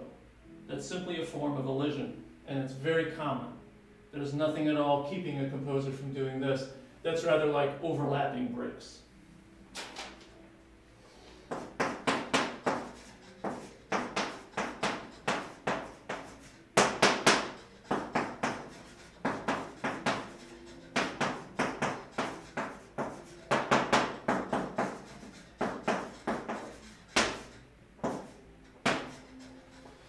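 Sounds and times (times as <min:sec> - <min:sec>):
chalk tapping and scraping on chalkboard: 0:11.1 - 0:30.0.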